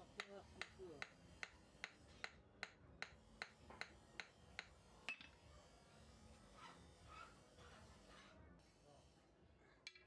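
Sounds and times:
hammer tapping chisel on steel: 0.2 - 5.4.

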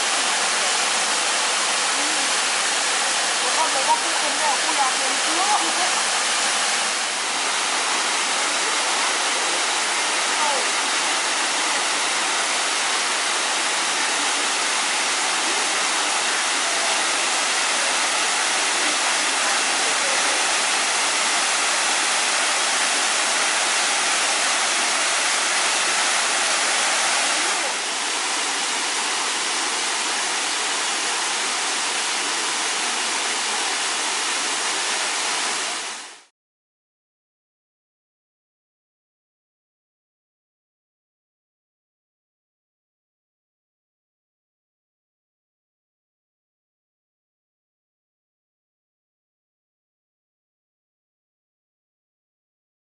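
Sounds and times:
waterfall splashing into pool: 0.0 - 36.3.

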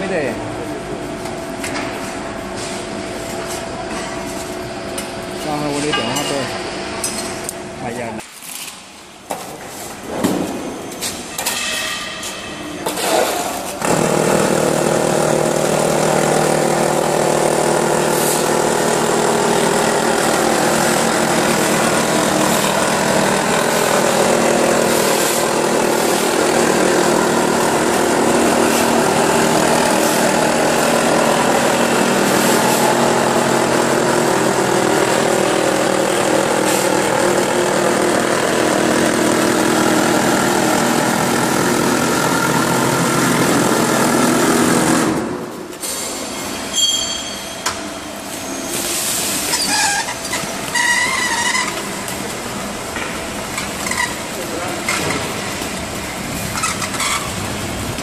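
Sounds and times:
machine motor humming: 13.6 - 45.6.

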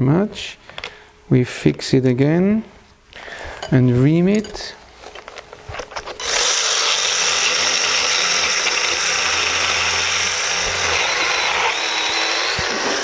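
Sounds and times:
cutter grinding on bone: 5.9 - 13.0
high-pitched power tool whir: 6.2 - 13.0.

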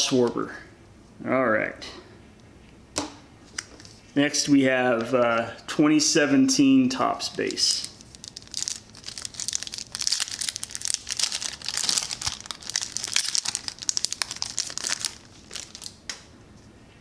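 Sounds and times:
foil wrapper crinkling and tearing: 7.4 - 16.0.

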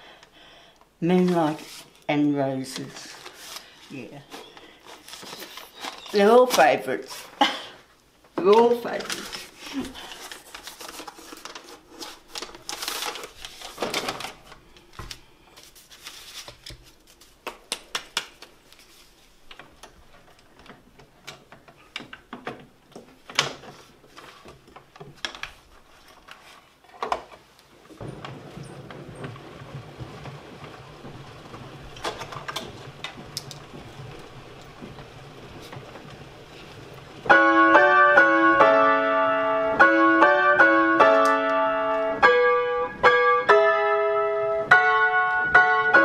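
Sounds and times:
paper roll and cardboard box handled: 1.1 - 7.6, 8.4 - 39.4
player piano mechanism running: 28.0 - 46.0.

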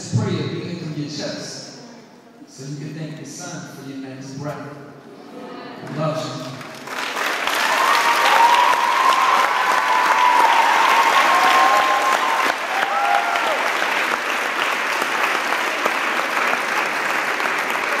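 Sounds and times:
audience applauding: 6.5 - 18.0
audience cheering: 7.2 - 18.0.

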